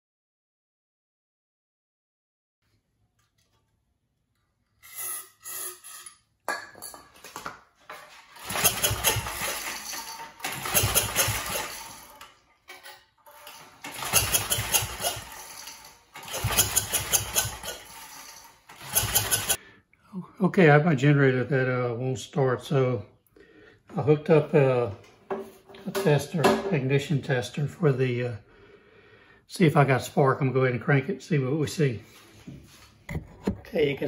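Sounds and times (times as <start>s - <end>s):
engine turning over without starting: 8.2s - 12.4s, 13.3s - 19.6s.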